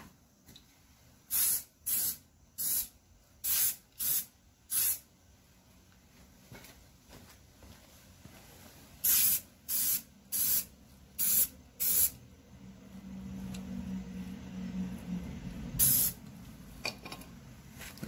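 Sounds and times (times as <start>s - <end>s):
spray paint can hissing: 1.3s - 5.1s, 9.0s - 12.2s, 15.7s - 16.2s.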